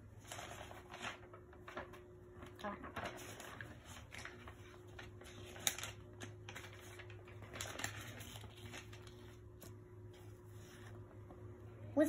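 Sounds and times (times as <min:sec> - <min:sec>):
low steady hum: 0:00.0 - 0:12.0
book rustling and clicking: 0:03.0 - 0:11.4.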